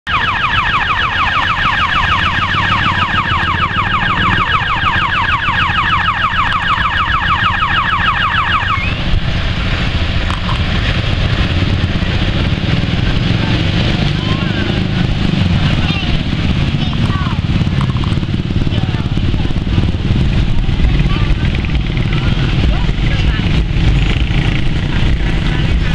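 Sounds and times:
electronic warning siren: 0.1s - 9.2s
diesel locomotive engine running: 0.2s - 25.9s.

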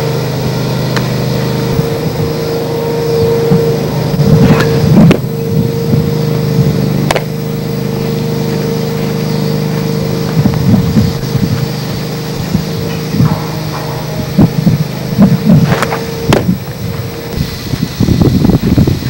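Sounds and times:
low hum: 0.0s - 19.0s
wind buffeting microphone: 0.0s - 19.0s
sharp pops: 7.0s - 7.4s.

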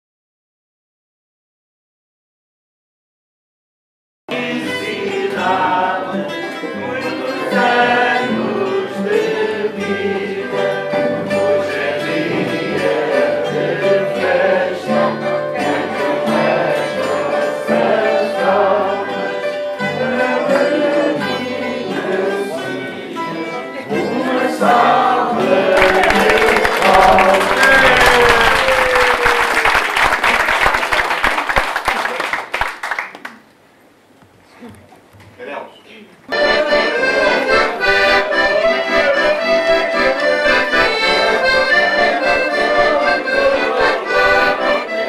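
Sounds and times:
acoustic guitars strumming: 4.3s - 28.3s, 36.3s - 45.0s
person singing: 4.3s - 28.4s, 36.3s - 45.0s
applause: 25.8s - 33.4s.

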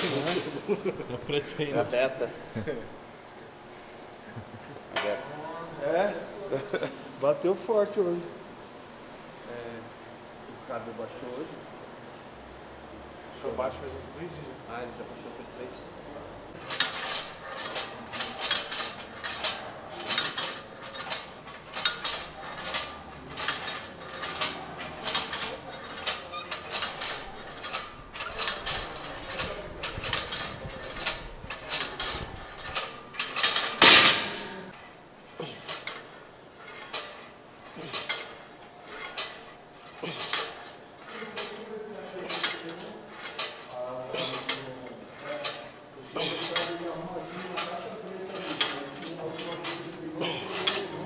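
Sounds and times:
rhythmic mechanical clicking and clanking: 16.5s - 51.0s.

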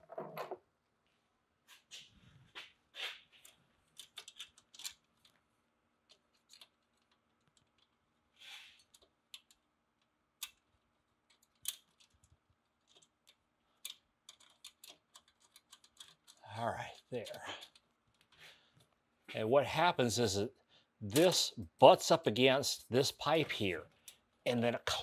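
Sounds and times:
small metal parts clicking: 3.4s - 5.4s, 6.0s - 8.0s, 8.8s - 18.4s.

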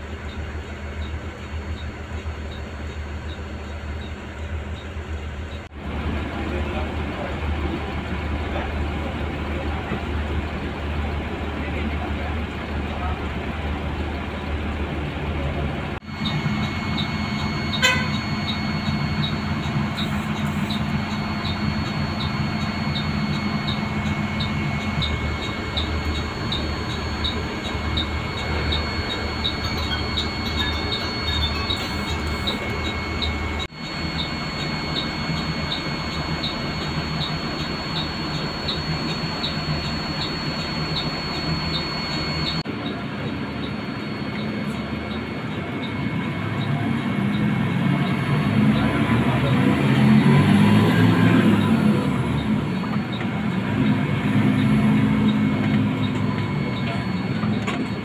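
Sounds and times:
diesel bus engine idling: 0.0s - 58.0s
steady ticking: 15.9s - 48.2s.

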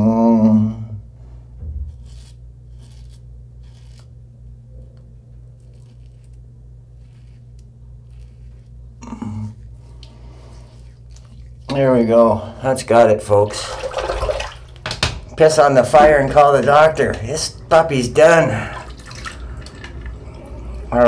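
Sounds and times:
person humming: 0.0s - 1.0s, 9.0s - 9.7s
razor scraping stubble: 1.8s - 4.2s, 4.9s - 12.0s.

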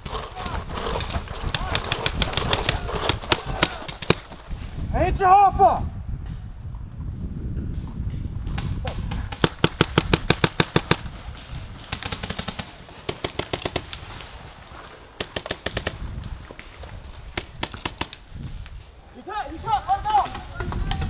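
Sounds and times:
paintball marker firing: 8.6s - 11.1s.

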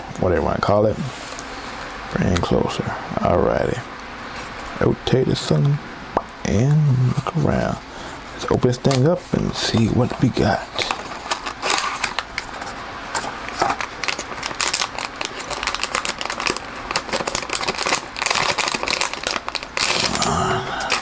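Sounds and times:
plastic bag crinkling: 10.2s - 21.0s.

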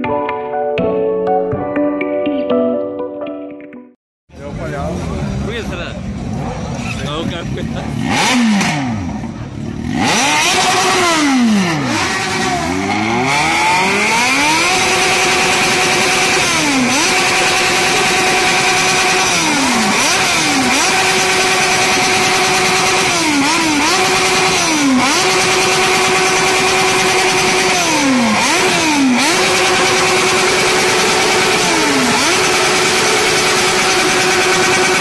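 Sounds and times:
motorcycle engine revving hard: 4.4s - 35.0s.

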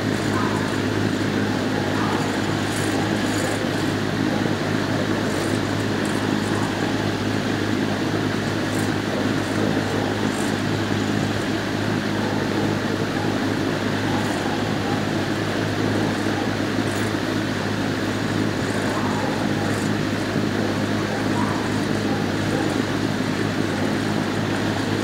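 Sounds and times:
ventilation hum: 0.0s - 25.0s.

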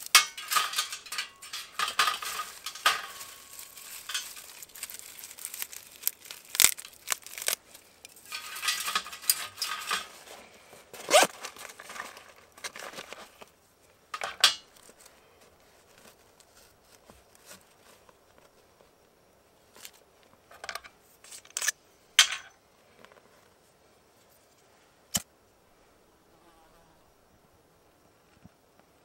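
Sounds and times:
hands rustling dry sticks: 0.0s - 19.0s.

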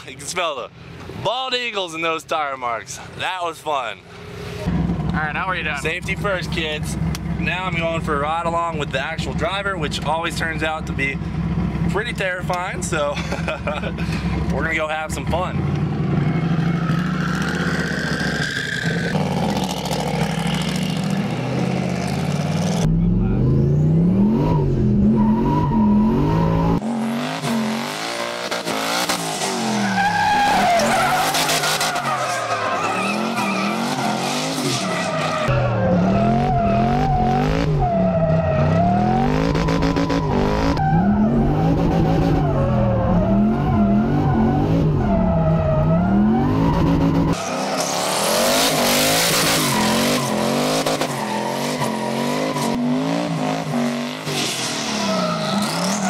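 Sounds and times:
car engine revving: 13.7s - 56.0s
tyres squealing: 29.7s - 46.7s.

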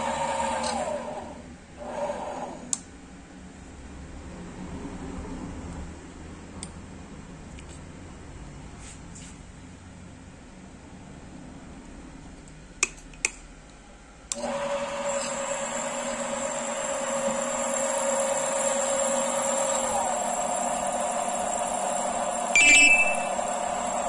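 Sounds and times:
lathe motor whining: 14.4s - 24.0s.

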